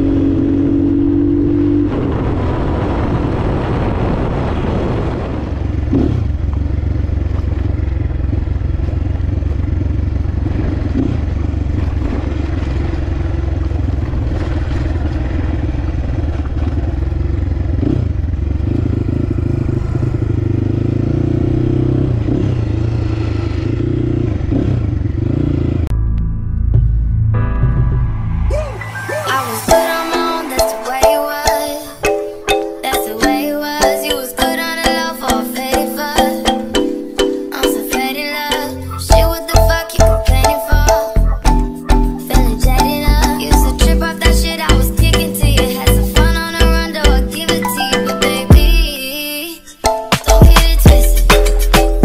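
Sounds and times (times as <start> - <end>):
wind and road noise: 0.0 - 26.0
dirt bike engine running: 4.9 - 25.9.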